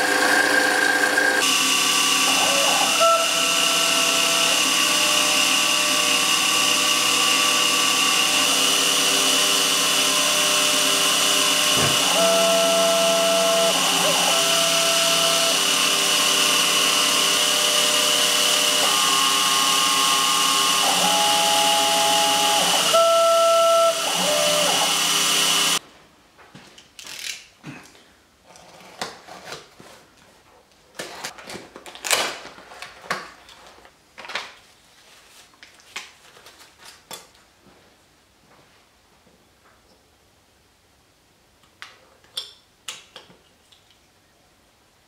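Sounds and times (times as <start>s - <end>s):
milling machine whining: 0.0s - 25.8s.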